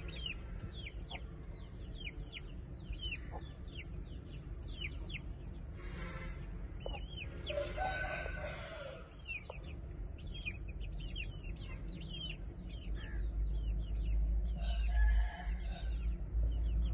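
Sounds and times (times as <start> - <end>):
small birds chirping: 0.0 - 16.9
rooster crowing: 7.4 - 9.2, 14.6 - 16.1.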